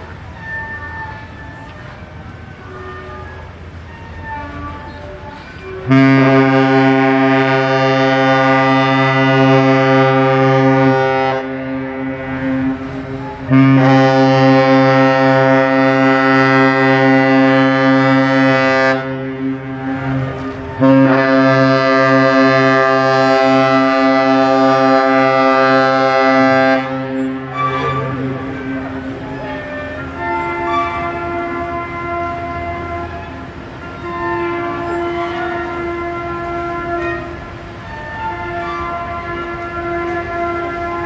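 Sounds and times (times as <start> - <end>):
ship horn blasts: 0.0 - 41.0.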